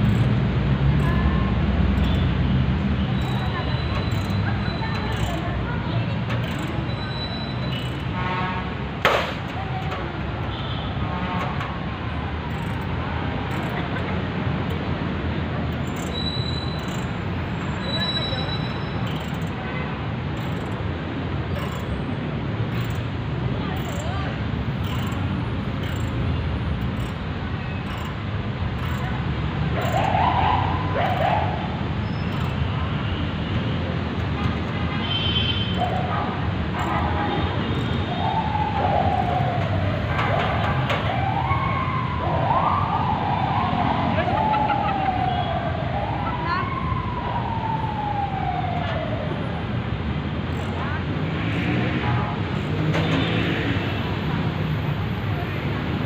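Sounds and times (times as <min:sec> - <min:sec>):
distant voices: 0:00.0 - 0:34.9
traffic rumble: 0:00.0 - 0:56.0.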